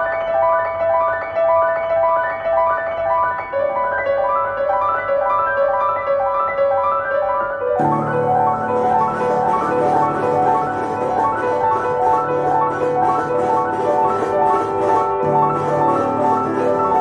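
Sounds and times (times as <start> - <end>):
pianos playing repeated notes: 0.0 - 17.0
hissy ticking percussion: 7.8 - 17.0.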